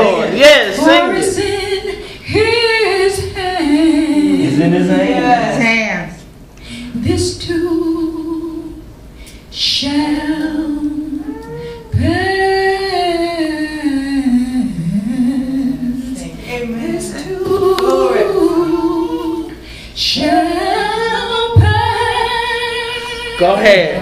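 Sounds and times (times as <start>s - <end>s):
woman singing gospel unaccompanied: 0.1s - 5.8s, 6.7s - 24.0s
singer breathing: 6.6s - 7.0s, 19.5s - 20.0s.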